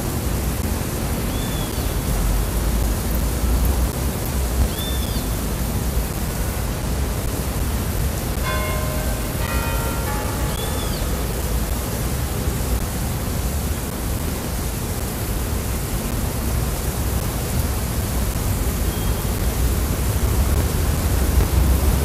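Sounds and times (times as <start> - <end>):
city square ambience: 0.0 - 22.0
wind rumbling on microphone: 10.5 - 22.0.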